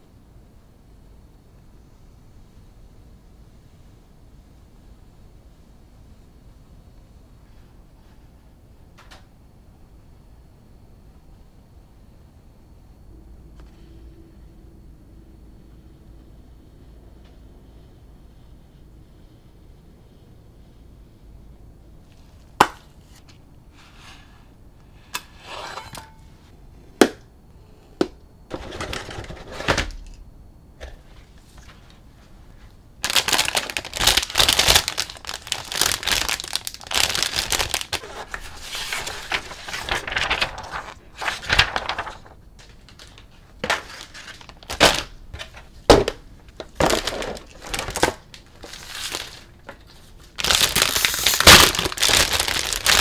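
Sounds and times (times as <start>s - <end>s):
plastic bags crinkling: 33.0s - 45.2s, 46.0s - 53.0s.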